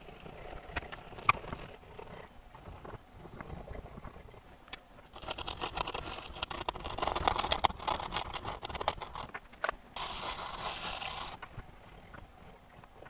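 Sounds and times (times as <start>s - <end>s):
tools scratching circuit board: 5.1s - 9.4s, 10.0s - 11.4s
hissing scrub: 10.0s - 11.5s.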